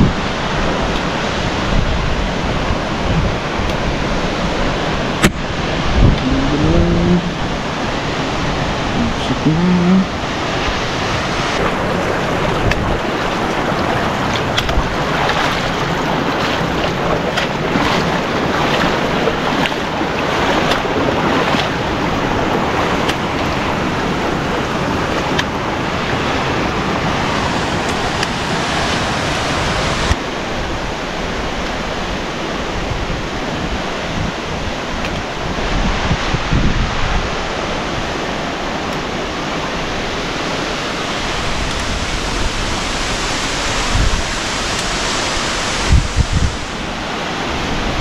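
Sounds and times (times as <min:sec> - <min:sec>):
rushing water: 0:00.0 - 0:48.0.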